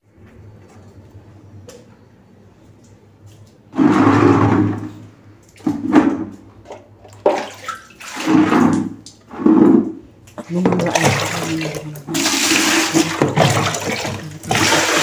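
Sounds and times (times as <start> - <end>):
water pouring into a bucket: 7.2 - 9.2, 10.8 - 15.0.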